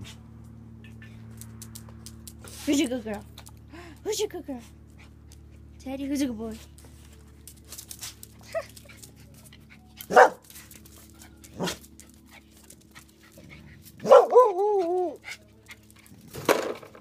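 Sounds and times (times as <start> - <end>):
dogs barking: 10.0 - 10.5, 11.5 - 11.8, 14.0 - 15.2.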